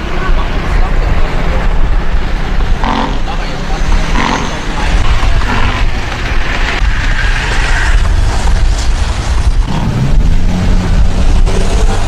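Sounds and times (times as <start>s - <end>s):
indistinct voices: 0.0s - 8.2s
low outdoor rumble: 0.0s - 12.0s.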